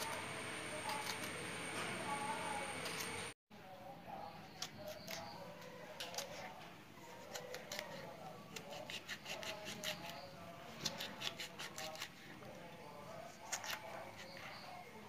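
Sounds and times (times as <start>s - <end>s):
knife slicing chillies: 0.0s - 1.4s, 5.9s - 6.5s, 7.1s - 12.2s, 13.3s - 14.6s.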